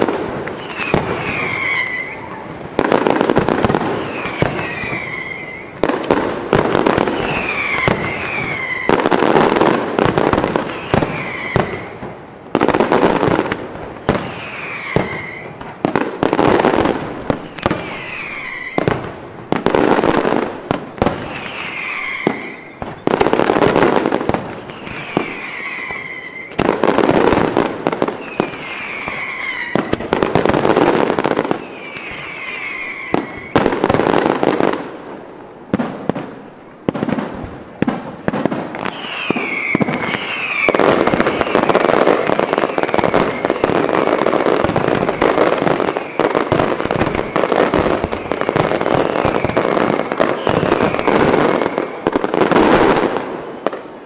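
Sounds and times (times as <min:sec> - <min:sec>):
fireworks bangs and crackle: 0:00.0 - 0:54.0
falling whistles: 0:00.6 - 0:02.4, 0:04.0 - 0:05.8, 0:07.1 - 0:09.0, 0:10.7 - 0:11.9, 0:14.1 - 0:15.6, 0:17.4 - 0:18.9, 0:21.3 - 0:23.2, 0:24.6 - 0:26.6, 0:28.2 - 0:30.0, 0:31.6 - 0:33.7, 0:38.8 - 0:43.8, 0:45.0 - 0:52.1.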